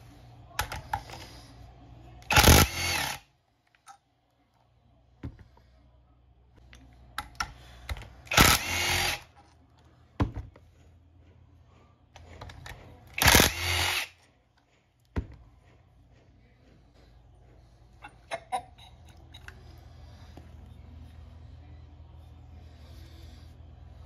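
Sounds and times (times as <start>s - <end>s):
power tool bursts: 2.3s - 3.2s, 8.3s - 9.2s, 13.2s - 14.1s.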